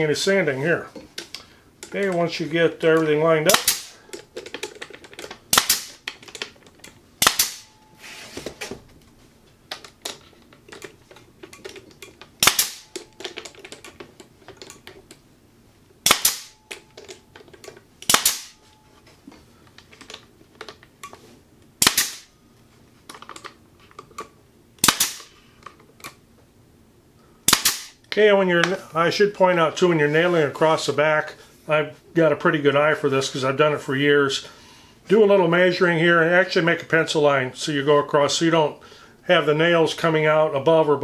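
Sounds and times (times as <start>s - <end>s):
nail gun shots: 3.5s - 4.0s, 5.5s - 6.0s, 7.2s - 7.7s, 12.4s - 13.0s, 16.0s - 16.6s, 18.0s - 18.6s, 21.8s - 22.3s, 24.8s - 25.3s, 27.5s - 28.0s.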